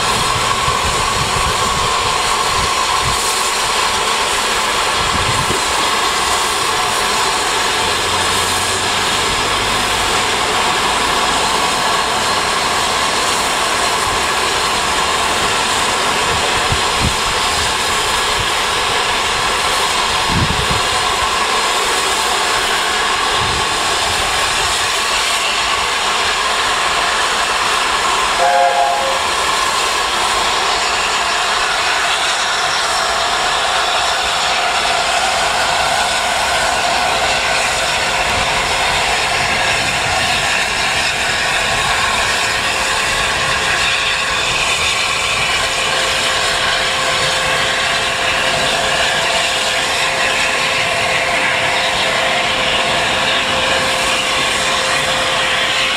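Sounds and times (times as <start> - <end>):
steam hissing: 0.0 - 55.9
steam whistle toot: 28.4 - 29.4.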